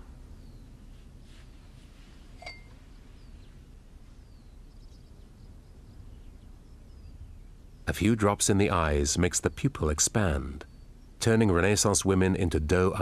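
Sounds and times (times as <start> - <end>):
faint bird chirps: 0.0 - 8.2, 9.2 - 11.8
low steady rumble: 0.0 - 13.0
short ringing clink: 2.4 - 2.8.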